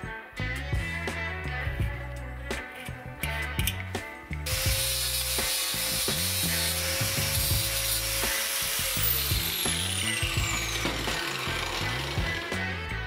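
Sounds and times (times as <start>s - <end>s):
background music with bass line: 0.0s - 13.0s
angle grinder cutting steel: 4.4s - 13.0s.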